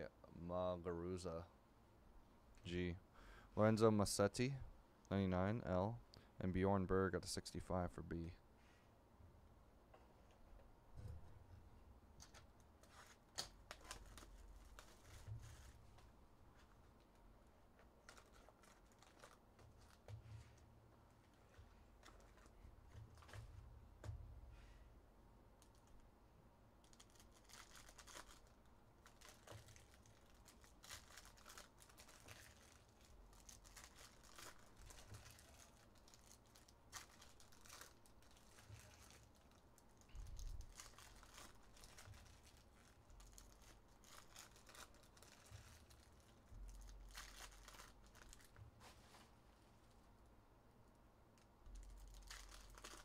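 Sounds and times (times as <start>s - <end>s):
foil wrappers crinkling and tearing: 12.2s - 15.8s, 18.0s - 20.6s, 26.8s - 48.6s, 51.7s - 53.0s.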